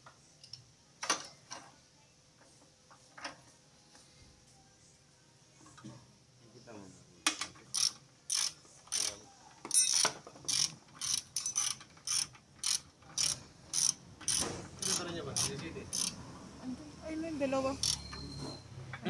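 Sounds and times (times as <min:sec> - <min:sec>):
ratchet wrench clicking: 0:07.7 - 0:16.2, 0:17.8 - 0:18.0.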